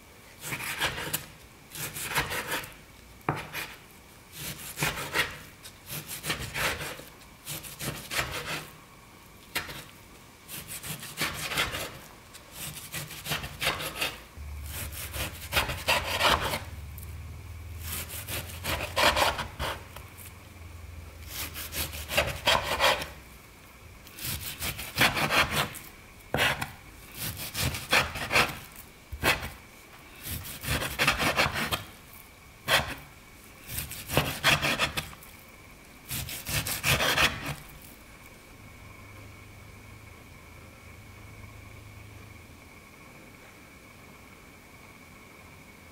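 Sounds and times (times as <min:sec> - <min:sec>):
knife slicing meat on board: 0:00.4 - 0:08.7, 0:10.5 - 0:12.0, 0:12.6 - 0:16.7, 0:21.3 - 0:23.2, 0:24.2 - 0:25.8, 0:26.4 - 0:29.6, 0:33.7 - 0:35.2, 0:36.1 - 0:37.6
low hum: 0:14.4 - 0:15.1, 0:16.6 - 0:17.9.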